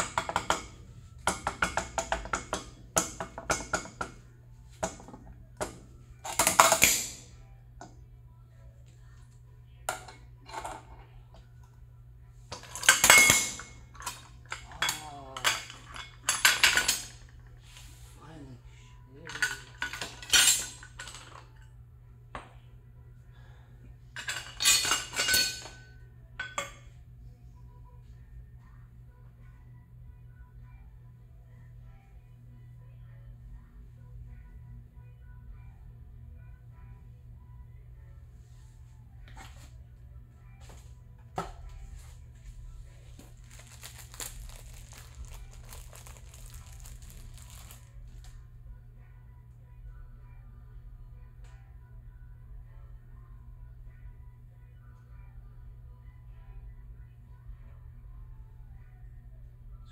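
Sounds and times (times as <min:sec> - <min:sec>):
steady low hum: 0:00.0 - 0:59.9
metal tools clinking on concrete: 0:12.5 - 0:17.3, 0:19.2 - 0:21.6, 0:24.2 - 0:26.8
crinkling and crackling: 0:43.1 - 0:48.3.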